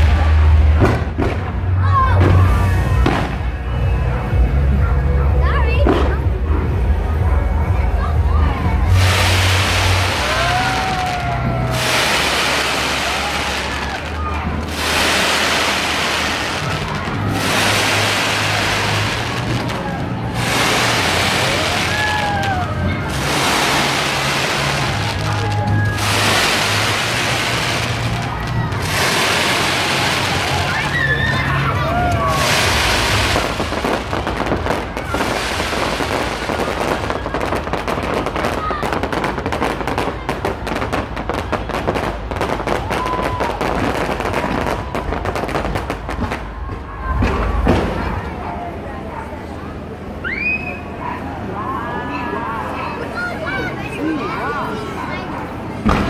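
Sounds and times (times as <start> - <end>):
fireworks crackling: 0.0 - 4.8, 8.7 - 48.4
faint thin whistle: 50.2 - 51.0.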